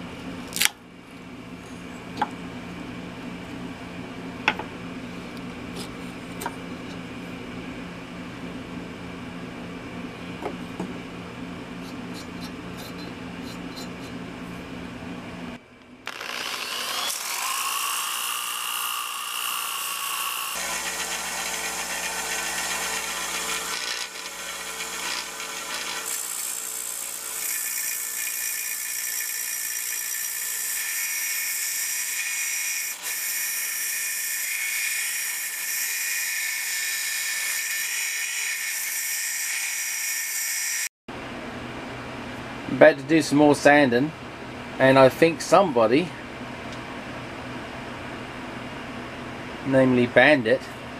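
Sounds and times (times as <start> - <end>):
steady low hum: 0.0 - 16.1
belt sander grinding metal: 16.0 - 40.8.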